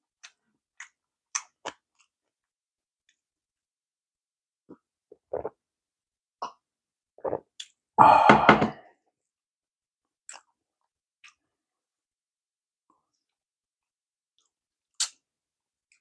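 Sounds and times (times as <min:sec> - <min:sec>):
person gulping a drink: 0:04.7 - 0:05.6, 0:07.2 - 0:08.9
loud rough burp: 0:08.0 - 0:08.8.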